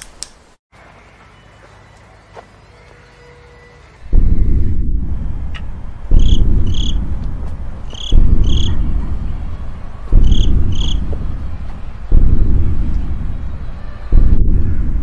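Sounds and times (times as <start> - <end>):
low rumbling boom: 4.1 - 15.0
high cricket-like chirps: 6.1 - 7.1, 7.9 - 8.9, 10.2 - 11.0.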